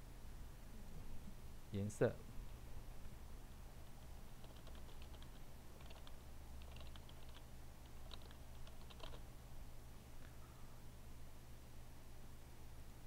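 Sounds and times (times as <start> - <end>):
steady low hum: 0.0 - 13.0
faint keyboard typing: 3.8 - 9.3.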